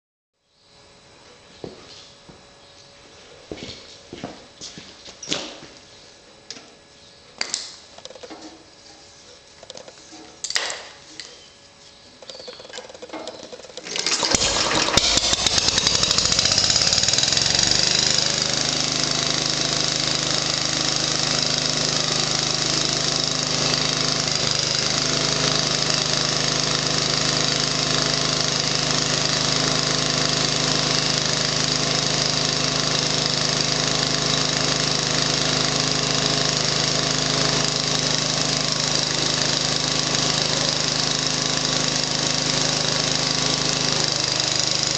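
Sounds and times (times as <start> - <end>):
gasoline engine starting and running: 12.2 - 44.9.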